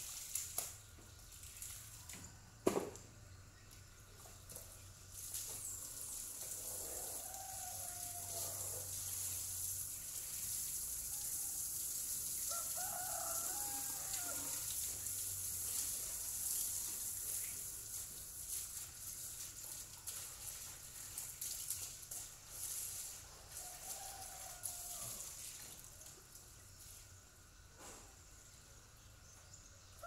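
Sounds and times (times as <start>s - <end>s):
garden hose spraying water: 0.0s - 30.0s
rooster crowing: 6.6s - 8.9s, 12.5s - 14.7s, 23.5s - 25.4s.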